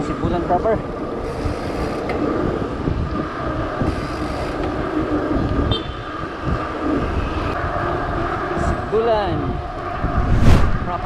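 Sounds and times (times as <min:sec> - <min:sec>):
wind buffeting microphone: 0:00.2 - 0:11.0.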